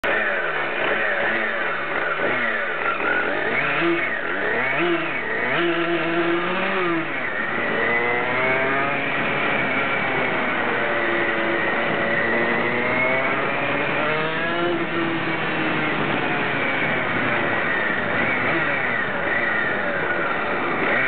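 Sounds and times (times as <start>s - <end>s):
moped engine revving: 0.0s - 21.0s.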